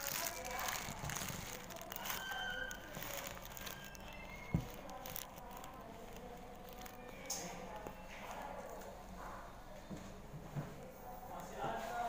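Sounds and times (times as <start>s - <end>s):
equipment rustling and clicking: 0.0s - 8.5s.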